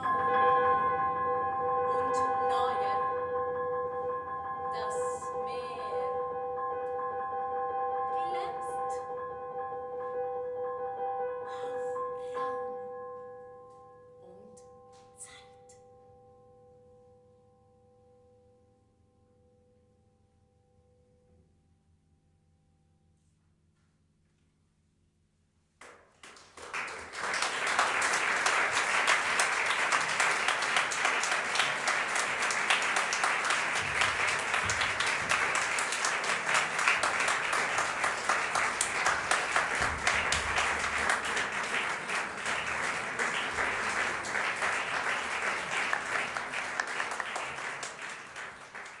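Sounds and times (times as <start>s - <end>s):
audience applauding: 26.2s - 49.0s.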